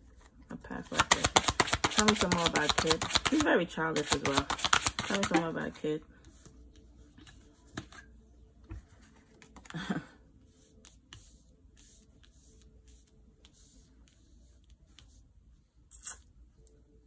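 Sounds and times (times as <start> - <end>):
cards tapping and sliding: 0.9 - 5.5.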